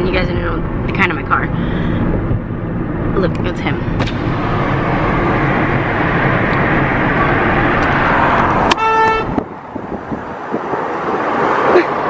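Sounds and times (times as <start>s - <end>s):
road and traffic noise: 0.0s - 12.0s
car horn: 8.7s - 9.4s.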